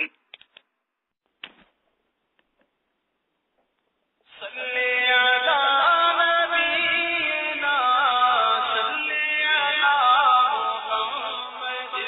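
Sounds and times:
person chanting: 0:04.4 - 0:12.0.

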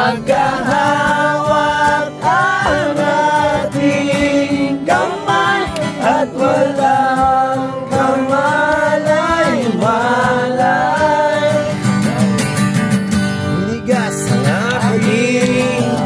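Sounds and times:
man singing: 0:00.0 - 0:12.2, 0:13.5 - 0:16.0
acoustic guitar strumming: 0:00.0 - 0:16.0.

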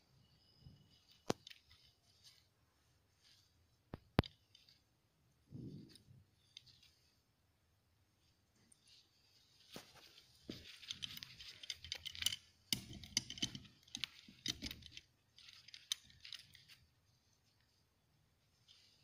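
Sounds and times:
metal tool clicking and rattling: 0:10.6 - 0:16.8.

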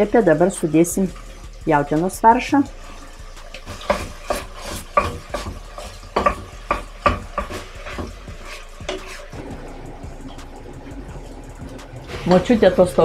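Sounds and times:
meat sizzling in a pot: 0:00.0 - 0:13.0
spoon scraping a metal pot: 0:02.7 - 0:09.4.

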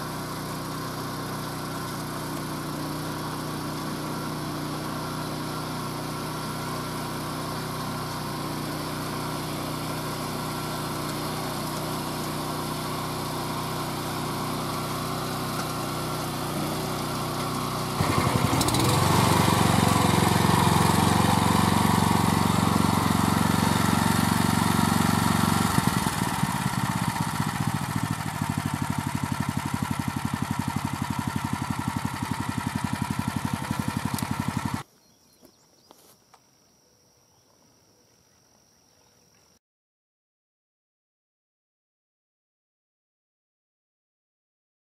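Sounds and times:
walk-behind tractor engine running: 0:00.0 - 0:34.8.

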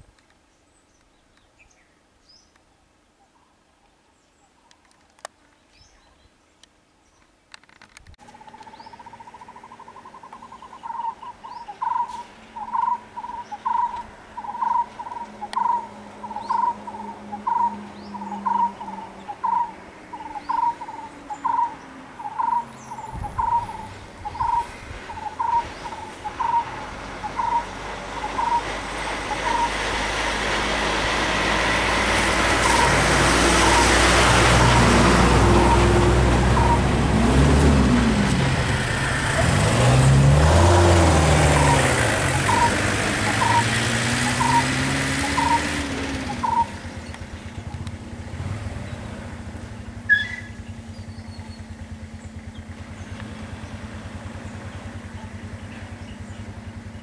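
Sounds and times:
vehicle engine: 0:07.5 - 0:57.0
bird calling short note: 0:50.1 - 0:50.6.

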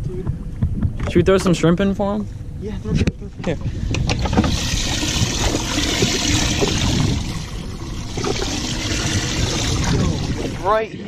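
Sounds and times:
water running and splashing: 0:04.4 - 0:10.7.

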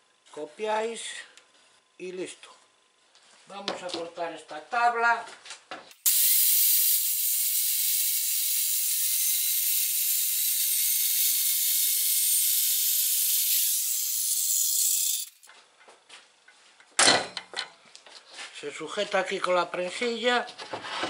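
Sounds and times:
circular saw cutting wood: 0:05.9 - 0:15.5.

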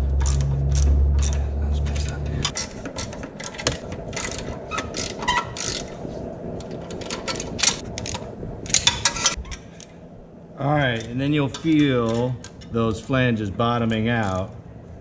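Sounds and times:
ratchet wrench clicking: 0:00.1 - 0:01.4, 0:02.0 - 0:05.9.

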